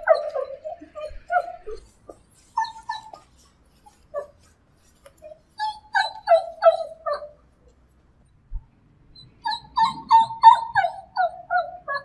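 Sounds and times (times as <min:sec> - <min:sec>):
dog whimpering: 0:00.0 - 0:04.4, 0:05.2 - 0:07.4, 0:09.4 - 0:12.0.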